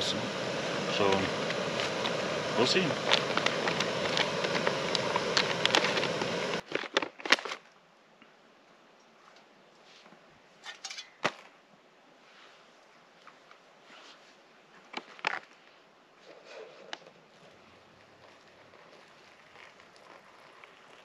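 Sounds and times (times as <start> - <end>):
gas stove burner hissing: 0.0 - 6.6.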